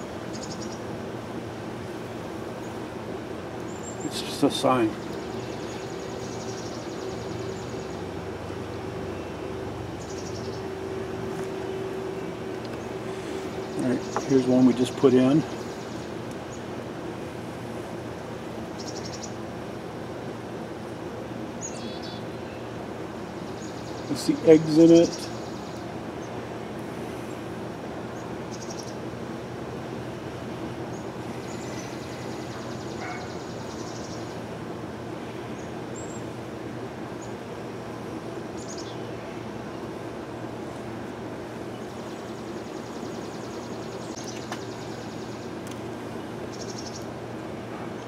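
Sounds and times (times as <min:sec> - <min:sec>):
honeybee colony humming: 0:00.0 - 0:48.0
bird chirps: 0:03.7 - 0:08.0, 0:09.1 - 0:16.6, 0:18.8 - 0:19.4, 0:21.6 - 0:22.7, 0:28.5 - 0:29.0, 0:30.9 - 0:34.4, 0:38.6 - 0:39.1, 0:46.2 - 0:47.1.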